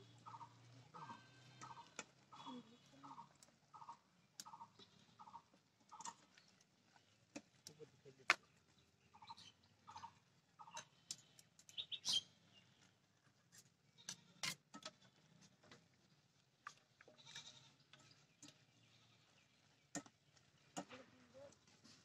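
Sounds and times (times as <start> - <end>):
goat bleating: 1.0 - 3.9, 17.2 - 17.8.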